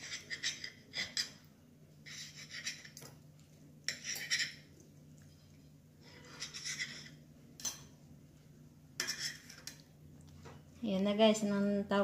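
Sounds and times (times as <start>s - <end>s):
fork scraping on ceramic plate: 0.0s - 3.2s, 3.8s - 7.8s, 9.0s - 9.8s
faint low hum: 0.0s - 12.0s.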